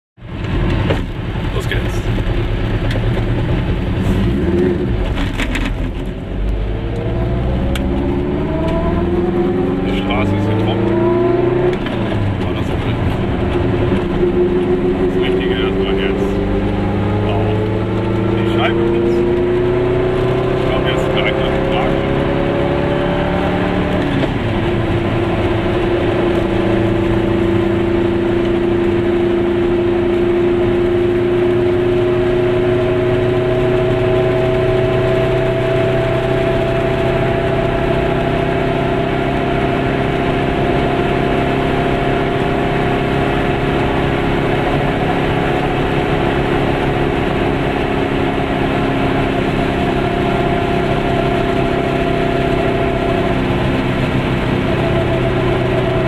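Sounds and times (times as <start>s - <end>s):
car engine: 0.2s - 56.0s
tyre noise on road: 0.2s - 56.0s.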